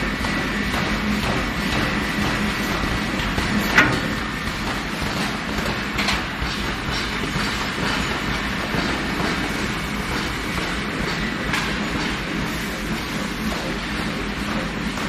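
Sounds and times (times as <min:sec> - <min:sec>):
machinery rumbling clatter: 0:00.0 - 0:15.0
metallic clank: 0:03.6 - 0:04.6.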